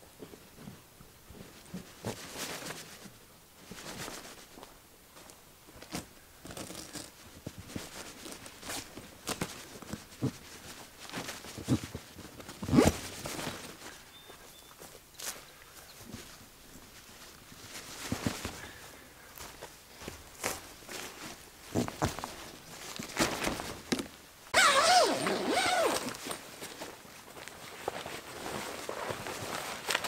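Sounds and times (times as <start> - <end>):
tent fabric rustling: 1.3 - 4.6, 5.8 - 30.0
footsteps on pine needles: 13.0 - 23.9.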